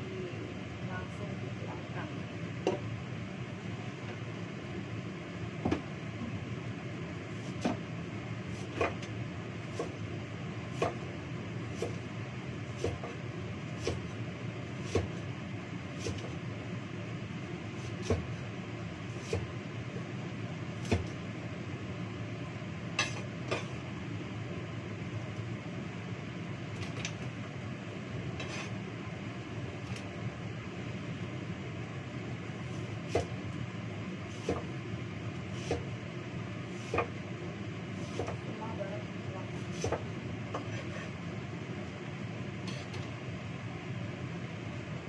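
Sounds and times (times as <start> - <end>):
steady whirring hum: 0.0 - 45.0
knife chopping on wooden board: 7.5 - 7.8, 9.7 - 10.0, 10.7 - 11.1, 11.7 - 12.0, 12.8 - 13.2, 13.8 - 14.1, 14.8 - 15.2, 17.8 - 18.3, 20.8 - 21.1, 33.0 - 33.4, 34.3 - 34.7, 35.5 - 35.9, 36.8 - 37.2, 38.0 - 38.4, 39.6 - 41.1.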